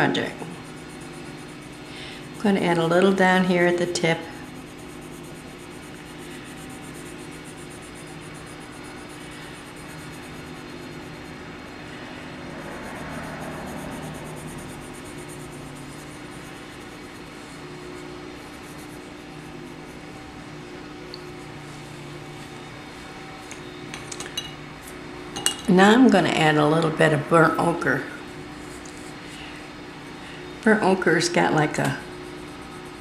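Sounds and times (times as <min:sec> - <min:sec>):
pencil scratching on paper: 0:00.0 - 0:22.5, 0:27.6 - 0:29.5, 0:31.8 - 0:33.0
low background hum: 0:00.0 - 0:33.0.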